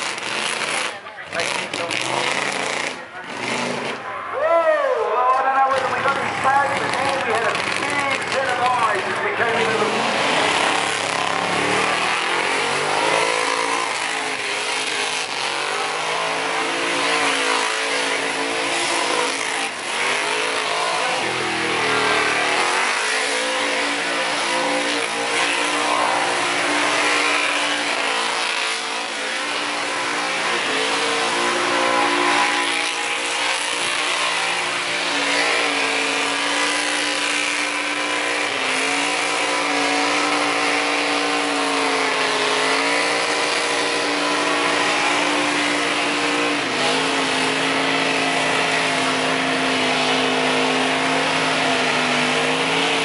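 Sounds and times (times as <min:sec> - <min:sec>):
engine at high revs: 0:00.0 - 0:04.2, 0:05.3 - 0:53.0
tyres screeching: 0:00.0 - 0:04.4.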